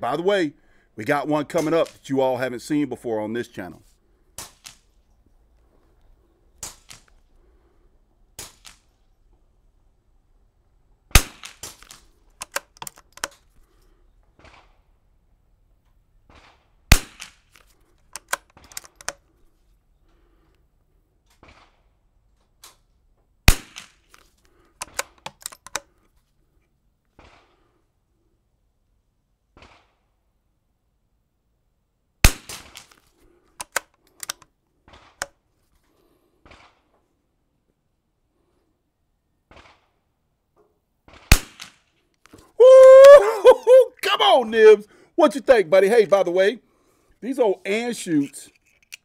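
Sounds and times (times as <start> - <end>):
rifle shots: 11.1 - 12.1, 16.3 - 17.5, 23.5 - 24.1, 32.2 - 32.9, 41.1 - 41.9
rifle bolt clicks: 11.7 - 13.5, 17.5 - 19.3, 24.1 - 25.9, 33.6 - 34.5, 48.2 - 49.0.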